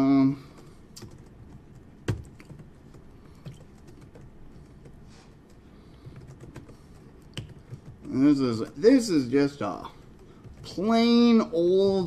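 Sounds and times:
computer keyboard keystrokes: 0.4 - 8.8, 10.0 - 11.0.

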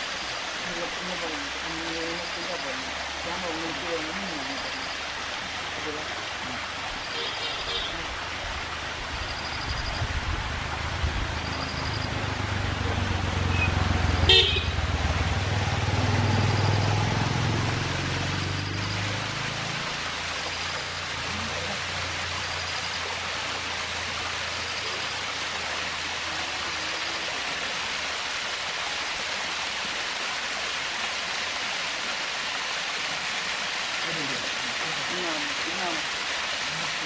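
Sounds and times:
small waterfall splashing: 0.0 - 37.0
vehicle engine rumble: 8.0 - 26.7.

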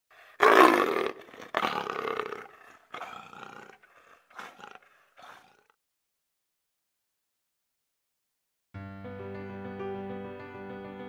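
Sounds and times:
big cat roaring: 0.2 - 5.8.

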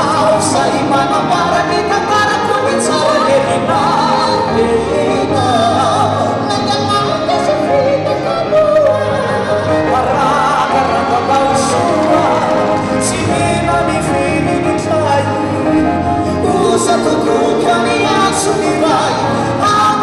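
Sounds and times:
guitar: 0.0 - 20.0
keyboard: 0.0 - 20.0
men singing gospel song: 0.0 - 20.0.

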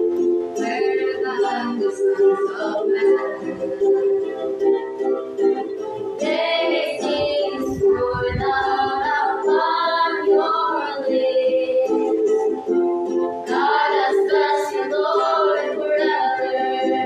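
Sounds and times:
strummed ukulele: 0.0 - 17.0
girls singing a hymn: 0.6 - 4.0, 6.2 - 12.3, 13.4 - 17.0.

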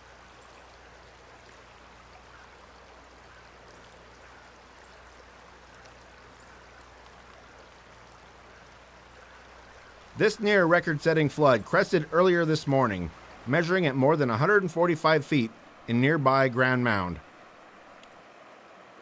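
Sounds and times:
faint rush of flowing river: 0.0 - 19.0.

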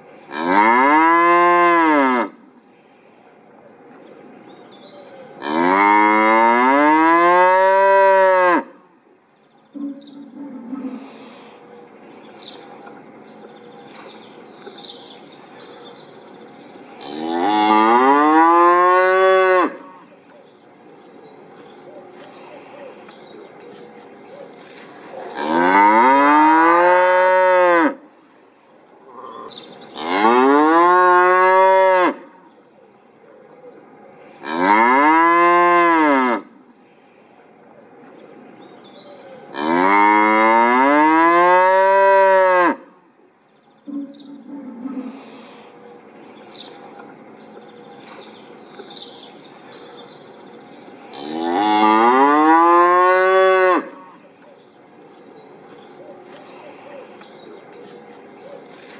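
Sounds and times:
cow mooing: 25.4 - 28.0, 51.1 - 54.0.

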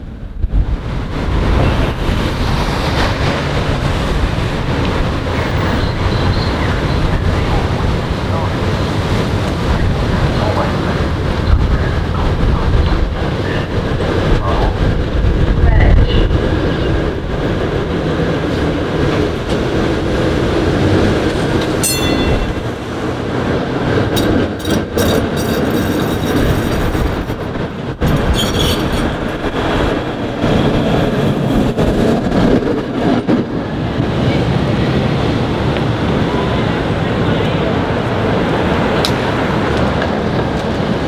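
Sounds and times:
streetcar rumbling past: 0.0 - 41.0
wheels clacking on rails: 0.0 - 41.0
high wheel squeal: 5.4 - 7.1, 28.2 - 29.1.

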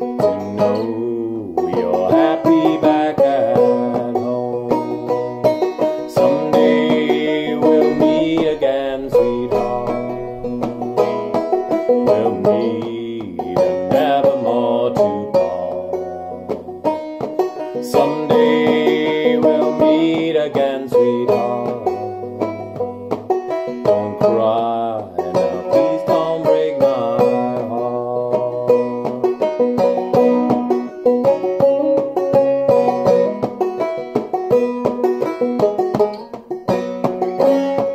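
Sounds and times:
banjo playing bluegrass: 0.0 - 37.9
man singing: 0.2 - 16.6, 17.7 - 22.8, 23.7 - 29.4.

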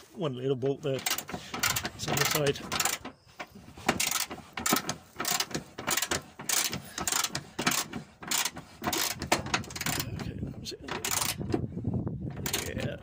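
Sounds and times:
ratchet wrench clicking: 1.0 - 10.2, 10.9 - 11.5, 12.4 - 12.8.

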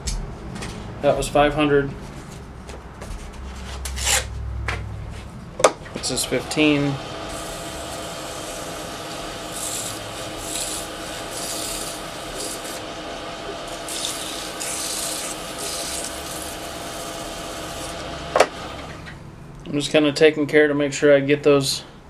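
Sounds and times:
lathe humming: 5.9 - 19.0
sandpaper rubbing on wood: 7.3 - 12.8, 13.8 - 18.0.

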